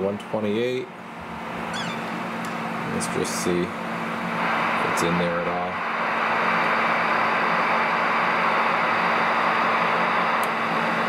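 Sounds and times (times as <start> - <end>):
radio static hiss: 2.8 - 11.0.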